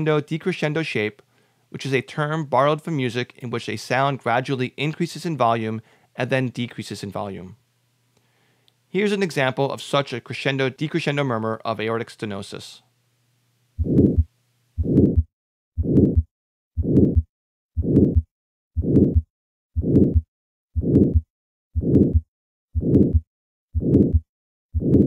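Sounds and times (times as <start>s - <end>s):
heartbeat through stethoscope: 13.8s - 25.0s
systolic heart murmur: 13.8s - 25.0s.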